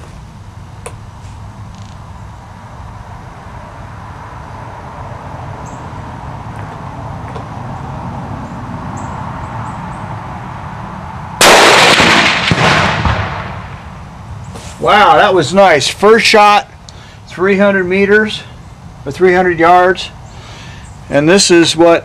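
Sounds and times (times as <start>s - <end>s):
distant target explosion boom: 11.4s - 13.8s
rifle shot: 11.4s - 13.8s.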